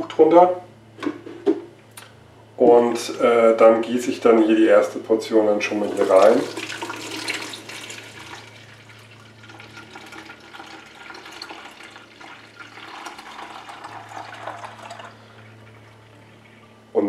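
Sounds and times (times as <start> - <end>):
low steady hum: 0.0 - 17.0
juice pouring through sieve: 5.6 - 16.6.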